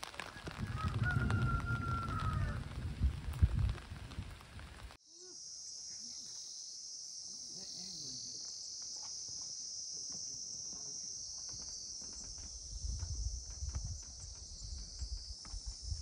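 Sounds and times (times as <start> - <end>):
high-pitched insect drone: 5.0 - 16.0.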